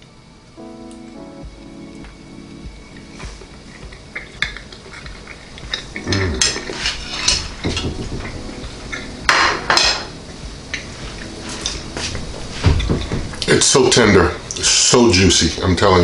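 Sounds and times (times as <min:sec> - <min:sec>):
cutlery rasping scrapes: 0:06.5 - 0:07.8.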